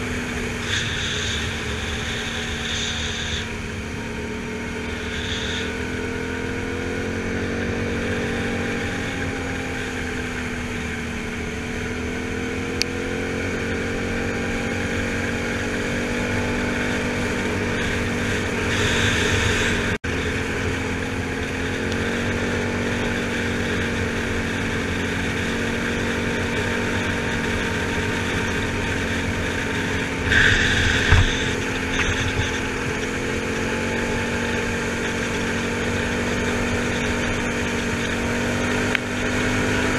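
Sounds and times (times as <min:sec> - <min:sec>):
atv engine running: 0:00.0 - 0:39.9
wind noise: 0:26.6 - 0:33.8.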